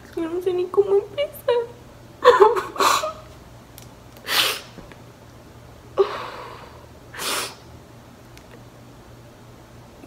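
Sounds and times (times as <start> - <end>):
woman sobbing: 2.2 - 3.3, 6.0 - 6.8.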